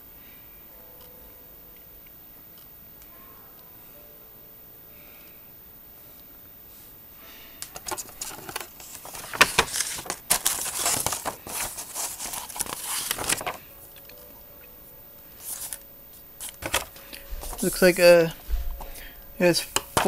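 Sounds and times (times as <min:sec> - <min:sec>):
paper pages rustling: 0:07.6 - 0:13.7, 0:15.4 - 0:15.8, 0:16.4 - 0:20.0.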